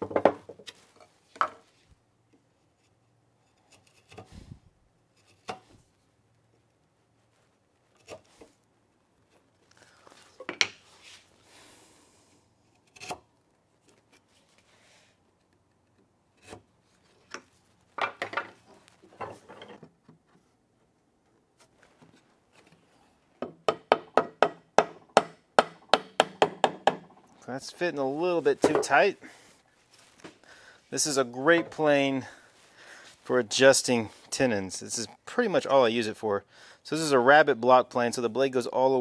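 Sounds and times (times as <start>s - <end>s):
chisel scraping wood: 2.6s - 4.3s, 7.9s - 8.5s, 15.9s - 17.4s.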